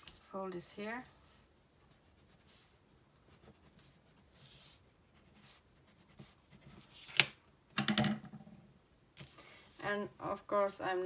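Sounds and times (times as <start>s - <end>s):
pencil scratching on paper: 1.0s - 7.0s.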